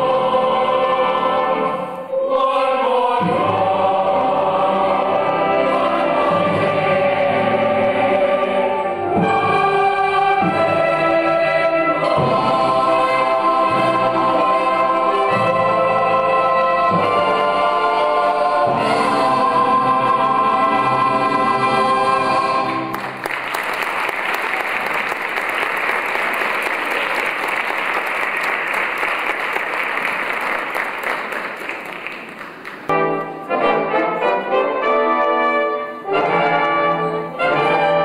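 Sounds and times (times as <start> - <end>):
brass music: 0.0 - 23.2, 32.8 - 38.0
chorus and orchestra holding chord: 0.0 - 23.2
audience applauding: 22.9 - 32.9.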